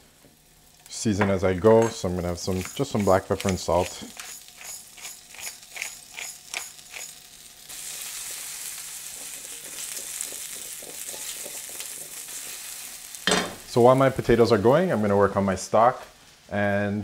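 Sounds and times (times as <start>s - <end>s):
potatoes sizzling in oil: 0.0s - 17.0s
grinder clicking: 2.5s - 7.2s.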